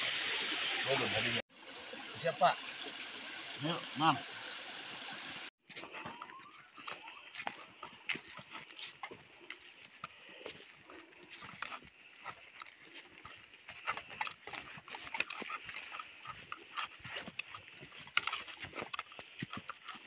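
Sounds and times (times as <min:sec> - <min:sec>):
footsteps crunching through dry leaves: 0:05.6 - 0:20.0.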